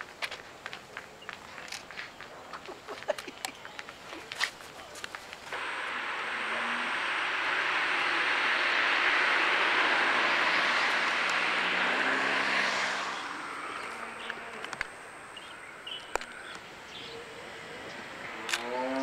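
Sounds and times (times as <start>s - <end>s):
vehicle passing with rushing noise: 5.5s - 16.1s.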